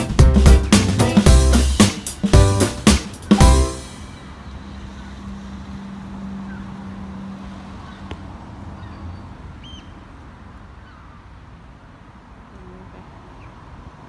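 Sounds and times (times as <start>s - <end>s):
high bird chirp: 8.8s - 10.0s.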